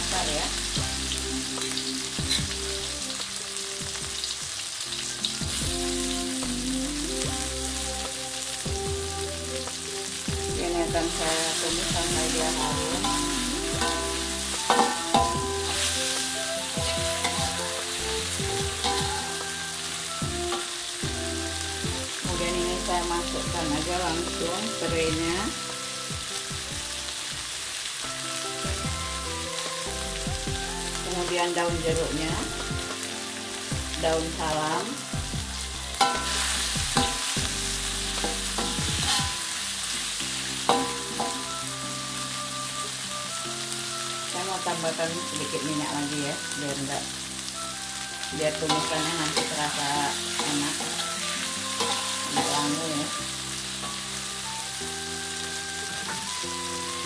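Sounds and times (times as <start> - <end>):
paste sizzling in hot oil: 0.0 - 57.0
wok clanging: 10.9 - 21.2, 35.9 - 41.7, 48.3 - 54.2
metal spatula scraping wok: 11.0 - 21.1, 35.9 - 41.7, 48.3 - 53.1.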